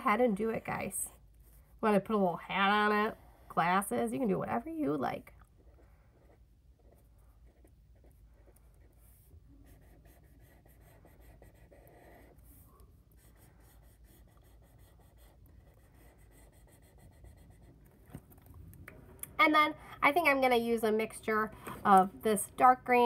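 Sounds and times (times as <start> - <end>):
marker scratching on paper: 0.0 - 18.2.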